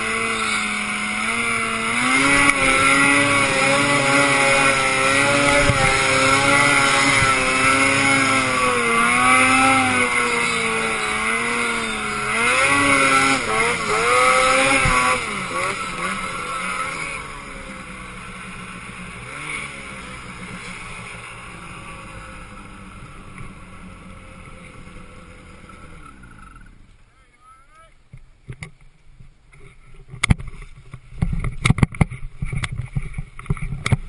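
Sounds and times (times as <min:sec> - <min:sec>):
snowmobile engine revving: 0:00.0 - 0:26.8.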